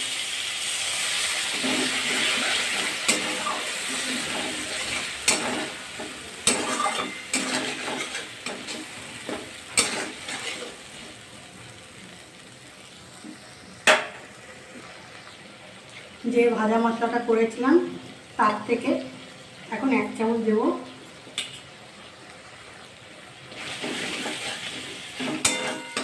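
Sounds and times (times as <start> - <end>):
potatoes sizzling in pan: 0.0 - 26.0
metal spatula scraping pan: 1.5 - 10.8, 23.6 - 26.0.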